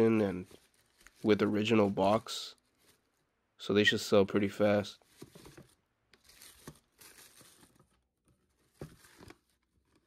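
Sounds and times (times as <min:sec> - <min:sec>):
tissue paper crinkling: 0:00.0 - 0:03.3, 0:05.0 - 0:10.0
cardboard box being handled: 0:05.0 - 0:10.0.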